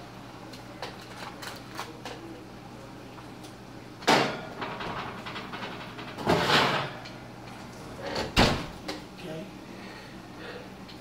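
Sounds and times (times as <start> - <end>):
oven rack rattle: 4.0 - 8.8
oven door metallic clank: 8.0 - 8.8.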